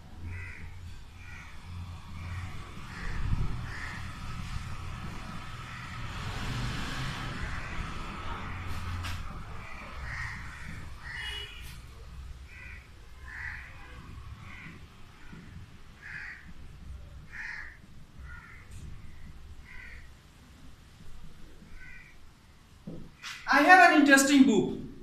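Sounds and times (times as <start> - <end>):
crow cawing: 0.3 - 4.6, 5.7 - 6.0, 7.3 - 9.0, 9.6 - 11.6, 12.5 - 16.6, 17.3 - 20.1, 21.7 - 22.2.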